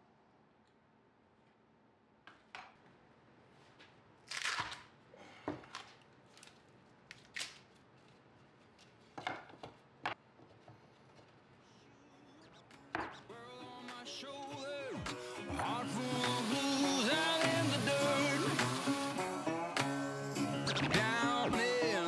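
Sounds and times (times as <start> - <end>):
background music: 12.3 - 22.0.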